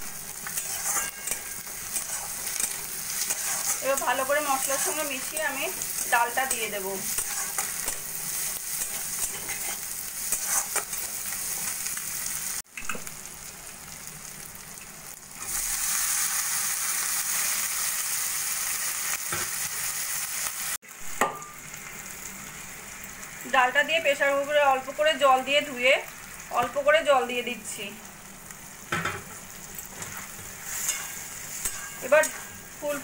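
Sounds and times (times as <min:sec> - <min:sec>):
food sizzling in hot oil: 0:00.0 - 0:33.0
spatula scraping metal pan: 0:00.5 - 0:11.7, 0:30.0 - 0:32.7.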